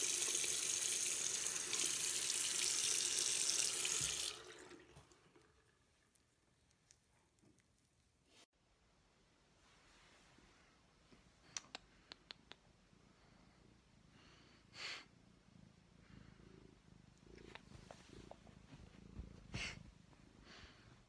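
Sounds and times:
cat purring: 13.0 - 21.0
breathy rustles: 17.4 - 21.0.

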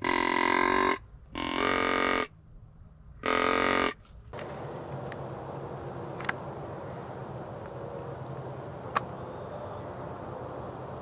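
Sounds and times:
deer call blown: 0.0 - 2.4, 3.2 - 4.0
steady background hiss: 4.4 - 11.0.

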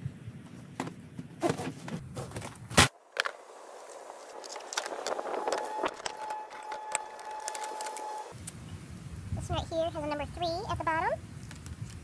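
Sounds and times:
plastic shrink wrap crinkling: 4.3 - 8.3.

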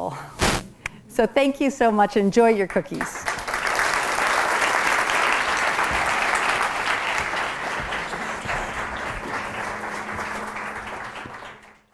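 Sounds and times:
audience applauding: 3.0 - 11.9.

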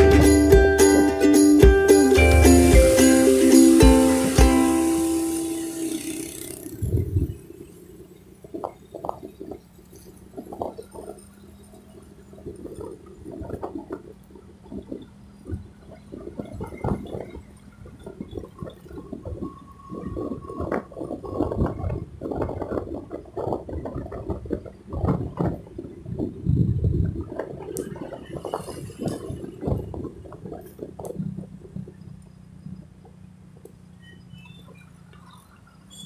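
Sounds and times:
road noise rumbling and bumps: 0.0 - 36.0.

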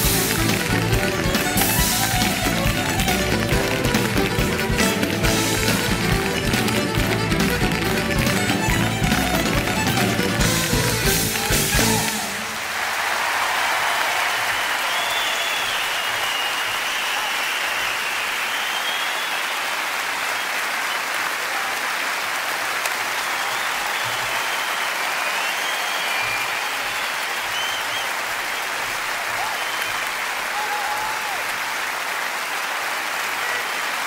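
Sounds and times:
dance steps: 0.0 - 12.2
stage dance music: 0.0 - 12.8
audience applauding and cheering: 0.0 - 34.0
whistles from audience: 14.4 - 21.2, 23.1 - 31.3.

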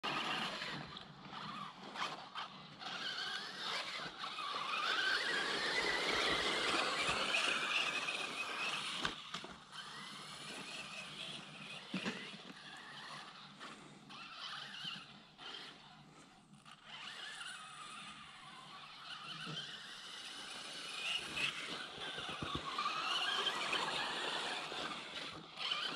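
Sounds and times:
electric motor whining: 0.0 - 25.9.

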